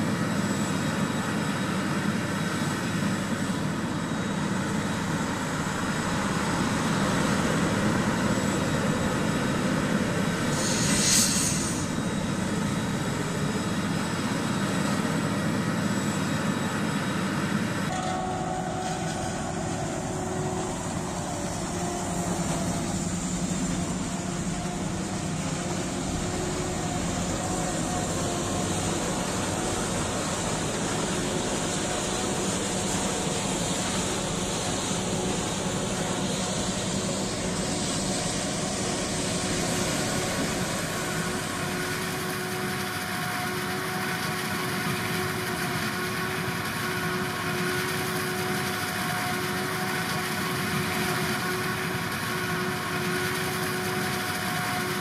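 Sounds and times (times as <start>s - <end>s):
heavy diesel farm machinery running: 0.0s - 55.0s
short hiss: 10.5s - 11.9s.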